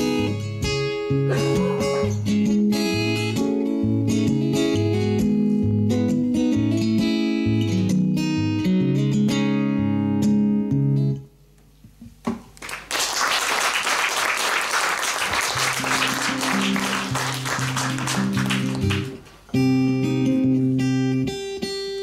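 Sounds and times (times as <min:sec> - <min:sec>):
acoustic guitar picking: 0:00.0 - 0:11.2, 0:15.6 - 0:22.0
acoustic guitar strummed chords: 0:00.0 - 0:11.3, 0:15.6 - 0:22.0
audience applause: 0:12.6 - 0:19.4.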